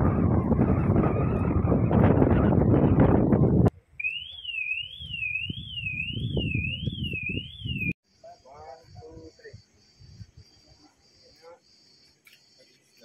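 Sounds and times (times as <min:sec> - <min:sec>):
wind buffeting microphone: 0:00.0 - 0:03.7, 0:05.0 - 0:08.0.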